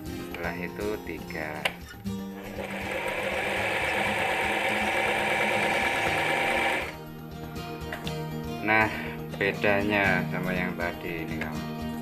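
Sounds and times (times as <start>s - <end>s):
sewing machine running: 2.4s - 7.0s.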